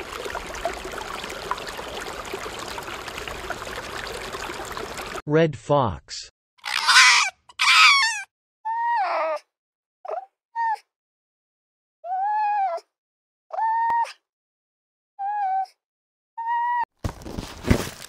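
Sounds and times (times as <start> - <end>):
fox whining calls: 6.6 - 8.2
fox harsh rasping calls: 6.6 - 8.3.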